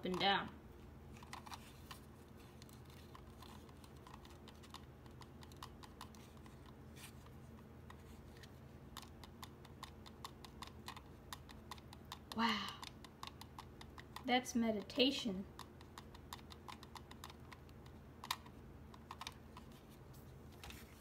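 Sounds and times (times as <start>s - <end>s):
plastic toy clicks and taps: 0.0s - 0.5s, 8.9s - 19.4s
low steady hum: 0.0s - 21.0s.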